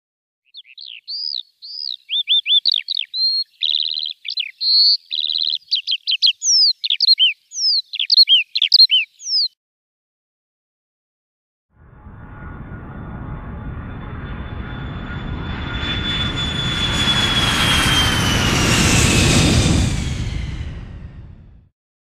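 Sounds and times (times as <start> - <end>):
songbird singing: 0.4 - 9.6.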